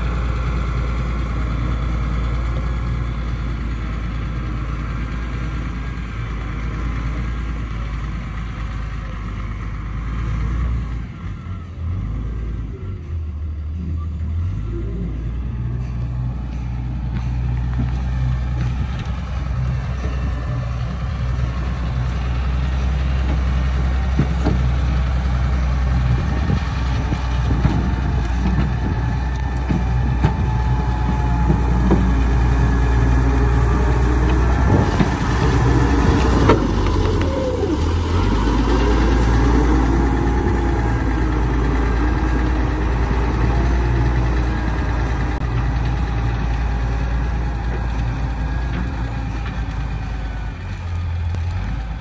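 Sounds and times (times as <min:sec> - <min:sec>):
excavator diesel engine running: 0:00.0 - 0:52.0
blade pushing dirt: 0:15.9 - 0:50.3.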